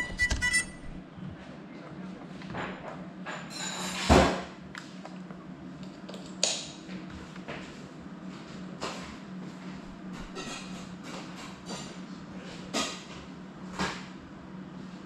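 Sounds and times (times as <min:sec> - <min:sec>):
low hum: 0:00.0 - 0:01.9.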